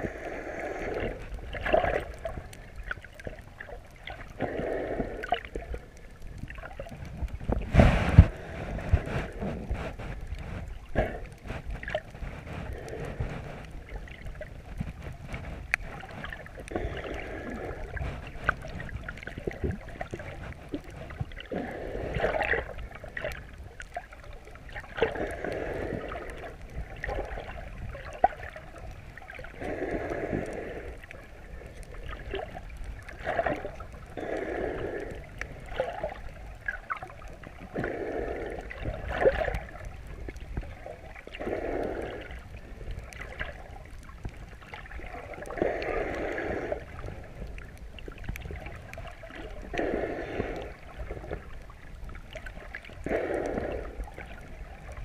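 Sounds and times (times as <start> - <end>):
underwater breathing: 0.0 - 3.3, 4.0 - 6.2, 7.1 - 23.4, 24.7 - 43.7, 44.6 - 51.7, 52.4 - 55.0
faint clicks: 0.0 - 7.7, 8.3 - 55.0
underwater water noise: 0.0 - 55.0.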